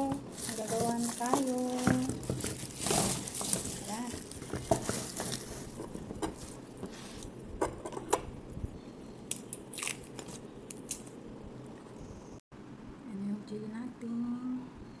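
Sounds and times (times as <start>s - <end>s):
garlic skins crackling: 0.0s - 7.4s, 9.2s - 11.2s.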